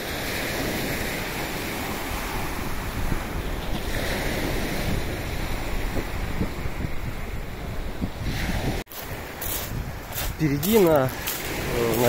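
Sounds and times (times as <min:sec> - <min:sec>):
wind rumble on microphone: 0:00.0 - 0:12.0
small waves breaking on pebbles: 0:08.9 - 0:12.0
water hissing over stones: 0:10.7 - 0:12.0.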